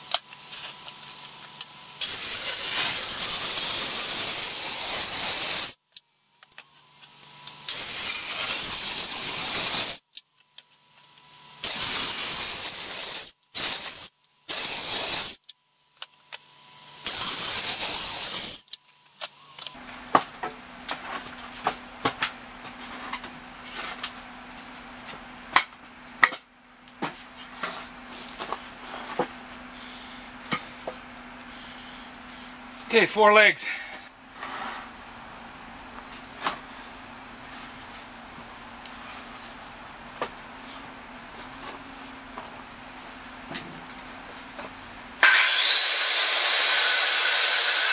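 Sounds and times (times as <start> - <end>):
circular saw cutting wood: 2.0 - 5.8, 7.6 - 10.0, 11.6 - 15.4, 17.0 - 18.8, 45.2 - 47.9
low steady hum: 18.6 - 45.2.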